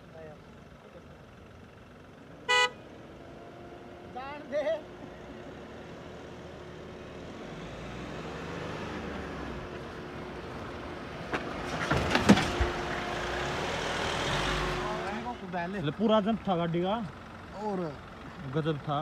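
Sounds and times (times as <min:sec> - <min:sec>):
diesel engine on dirt track: 0:00.0 - 0:19.0
vehicle suspension knocks and thump: 0:11.2 - 0:12.8.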